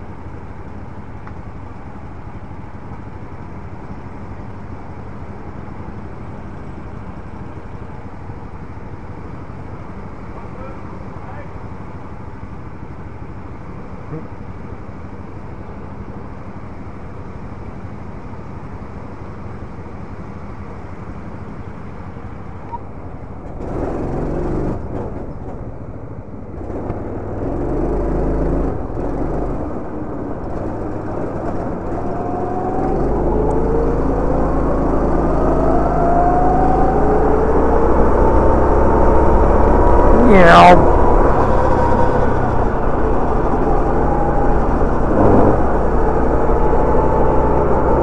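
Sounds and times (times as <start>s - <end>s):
go-kart engine revving: 23.4s - 25.2s, 26.5s - 48.0s.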